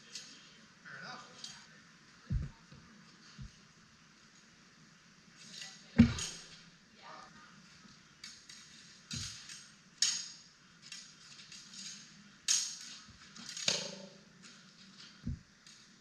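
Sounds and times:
dull thuds: 2.3 - 2.7, 6.0 - 6.6.

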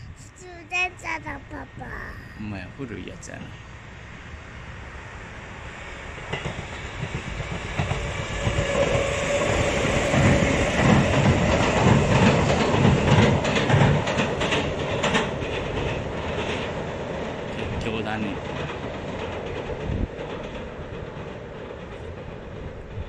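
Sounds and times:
train wheels clattering over rail joints: 6.2 - 23.0.

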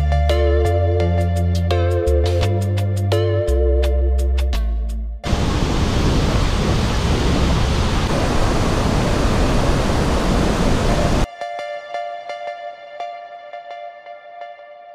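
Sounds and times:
waterfall roaring: 5.3 - 11.3.

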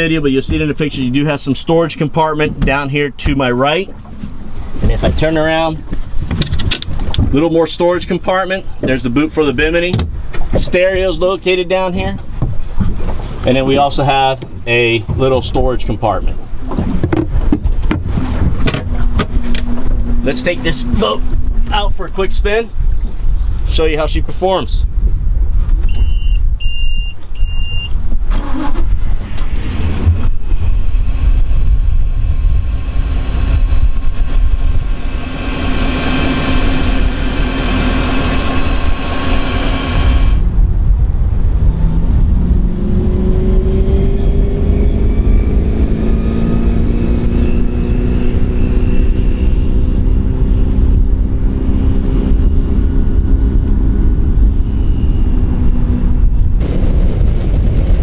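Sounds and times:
wind rumble: 0.0 - 58.0
motorboat engine accelerating: 16.4 - 23.1, 28.4 - 58.0
short beep: 25.8 - 28.0
boat engine running: 29.5 - 40.6.

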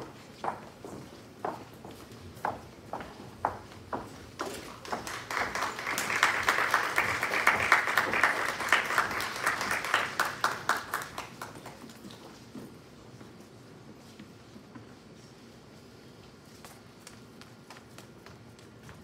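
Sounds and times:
footsteps on wooden floor: 0.0 - 5.0
audience applause: 4.8 - 12.0.

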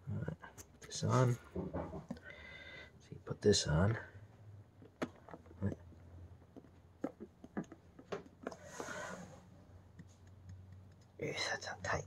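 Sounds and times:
small parts clicking and knocking: 4.7 - 8.6.

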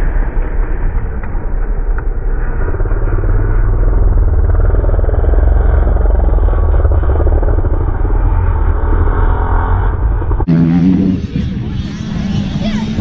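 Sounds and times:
motocross bikes accelerating: 2.3 - 13.0.

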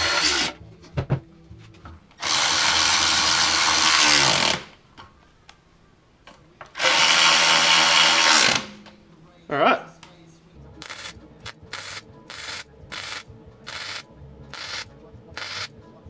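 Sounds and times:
power ratchet spinning: 2.2 - 4.7, 6.8 - 8.8, 11.8 - 14.0, 14.6 - 15.7.

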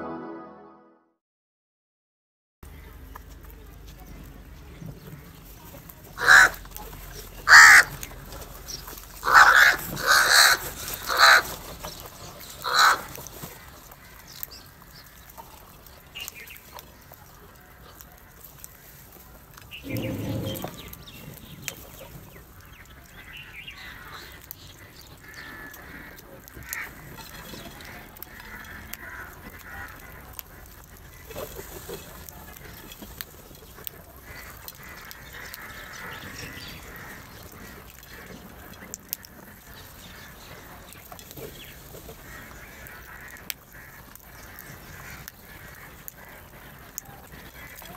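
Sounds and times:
crows cawing: 6.2 - 6.6, 7.4 - 8.0, 9.2 - 11.6, 12.6 - 13.2, 23.2 - 30.7, 34.2 - 38.4, 42.2 - 47.9.

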